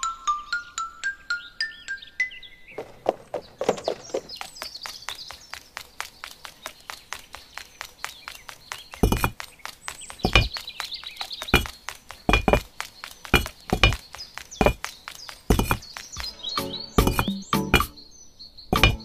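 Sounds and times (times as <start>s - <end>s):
faint high chirping: 0.0s - 19.0s
light ticks like tiny footsteps: 2.8s - 16.4s
sharp clacks of bricks set down: 9.0s - 16.2s, 17.0s - 18.0s, 18.8s - 19.0s.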